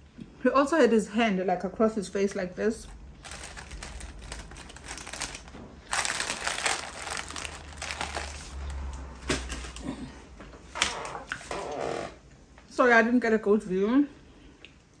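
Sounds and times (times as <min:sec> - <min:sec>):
packaging crinkling and rustling: 0:02.9 - 0:10.1.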